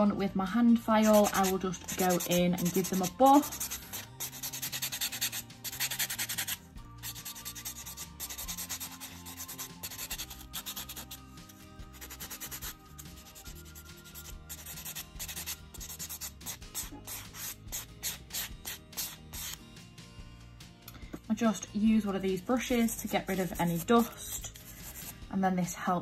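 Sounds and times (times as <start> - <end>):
nail buffer rubbing nails: 1.0 - 19.6, 22.8 - 25.2.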